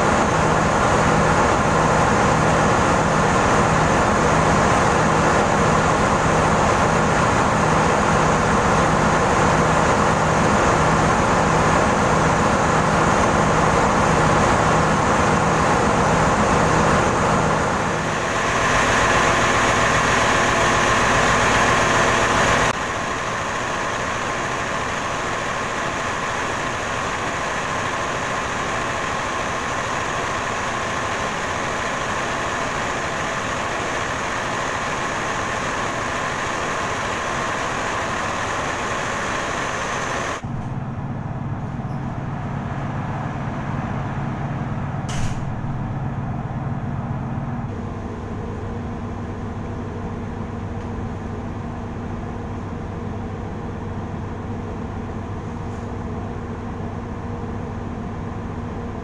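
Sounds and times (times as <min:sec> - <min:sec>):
diesel generator engines running: 0:00.0 - 0:59.0
short click: 0:45.1 - 0:45.5.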